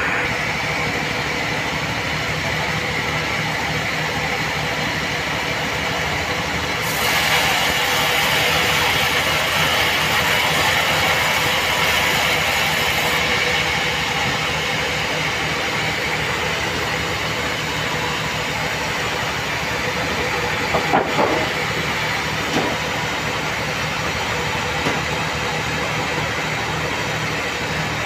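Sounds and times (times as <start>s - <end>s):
band sawmill humming: 0.0s - 28.0s
saw blade cutting wood: 6.8s - 13.8s.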